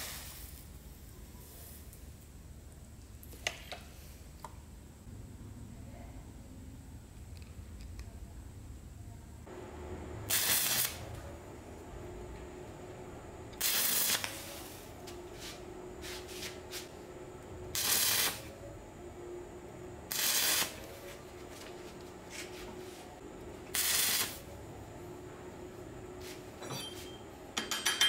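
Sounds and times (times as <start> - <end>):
arc welder crackling and hissing: 0.0 - 2.4, 9.5 - 11.8, 13.4 - 18.6, 20.0 - 24.7
steady hum: 0.0 - 28.0.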